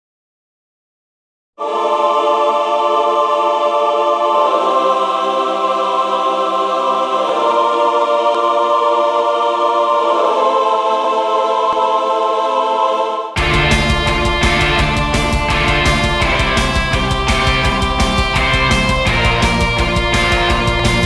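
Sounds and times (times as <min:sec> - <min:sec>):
rock music with drum beat: 0:13.4 - 0:21.0
slow sustained chords: 0:13.4 - 0:21.0.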